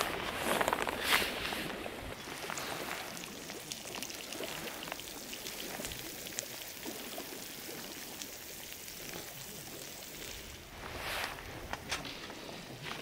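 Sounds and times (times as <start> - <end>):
melted cheese fizzing and crackling: 2.2 - 10.7.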